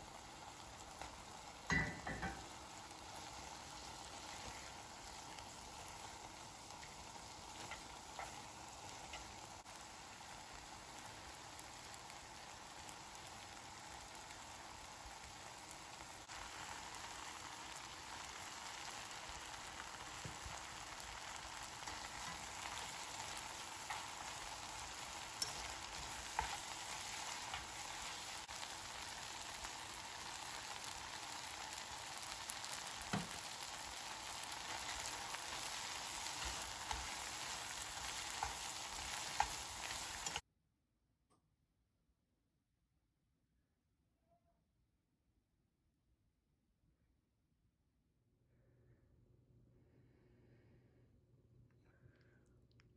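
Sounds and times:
noodles sizzling in a pan: 0:00.0 - 0:40.4.

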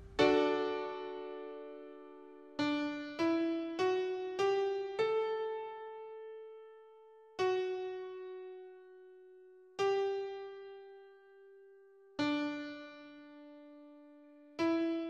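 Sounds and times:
piano playing a rising scale: 0:00.0 - 0:06.4.

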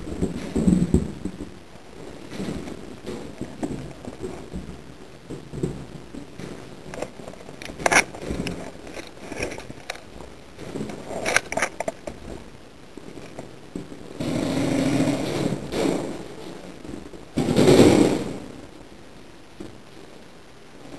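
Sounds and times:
sharp cracks: 0:00.0 - 0:12.5.

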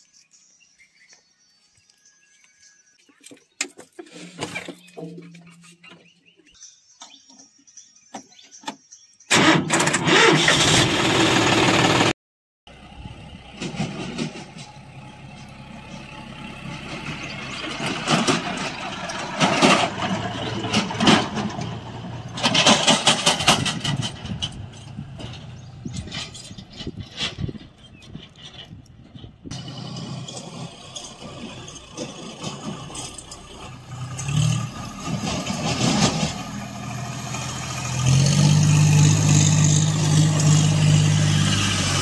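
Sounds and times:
loud burst of engine noise: 0:09.3 - 0:12.1
tractor diesel engine running: 0:09.3 - 0:12.1, 0:12.7 - 0:42.0
rattles: 0:13.6 - 0:41.2.

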